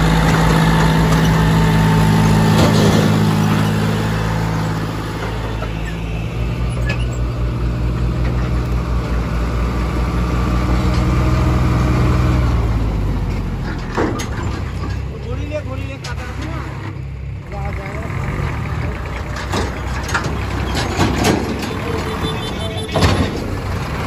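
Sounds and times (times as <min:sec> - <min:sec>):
tractor diesel engine under load: 0:00.0 - 0:24.0.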